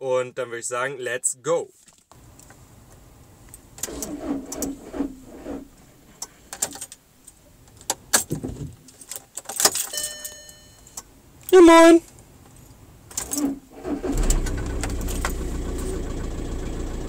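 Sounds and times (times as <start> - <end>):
car keys jangling: 6.6 - 7.0, 7.7 - 13.7, 14.5 - 16.0.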